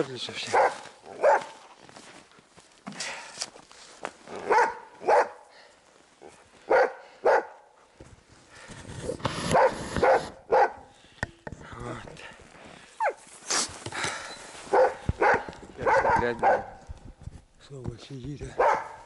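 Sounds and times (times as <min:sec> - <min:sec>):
dog barking: 0:00.5 - 0:01.6, 0:04.4 - 0:05.4, 0:06.7 - 0:07.7, 0:09.5 - 0:10.9, 0:14.7 - 0:16.8, 0:18.5 - 0:19.0.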